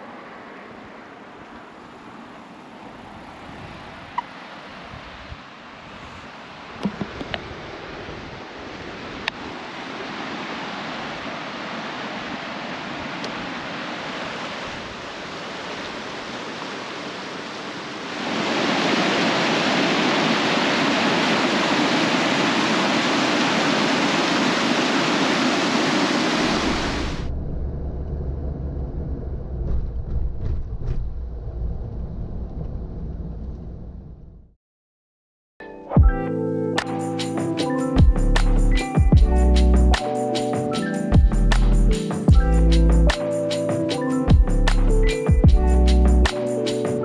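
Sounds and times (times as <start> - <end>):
river water rushing: 0.0 - 27.2
whitewater pouring over rocks: 9.6 - 27.2.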